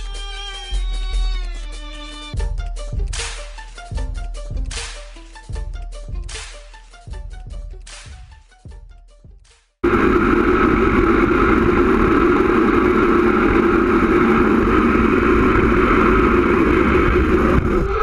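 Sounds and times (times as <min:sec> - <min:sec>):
scooter wheels rumbling on asphalt: 0:09.8 - 0:18.0
wind rushing over microphone: 0:09.8 - 0:18.0.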